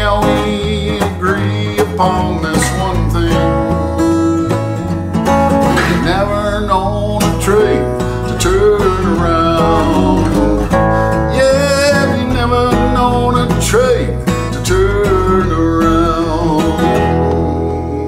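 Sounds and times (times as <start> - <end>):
acoustic guitar strumming chords: 0.0 - 18.0.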